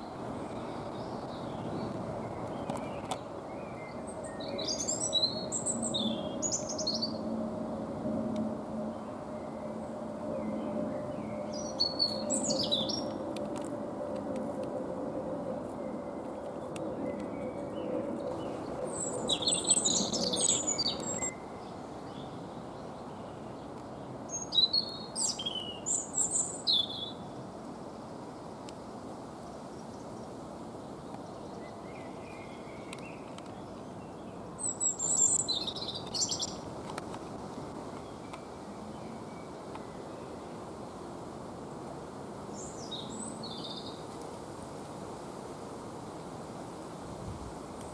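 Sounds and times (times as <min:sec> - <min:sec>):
songbird singing: 0:00.0 - 0:13.7, 0:15.6 - 0:27.3, 0:31.1 - 0:40.7, 0:42.4 - 0:44.1.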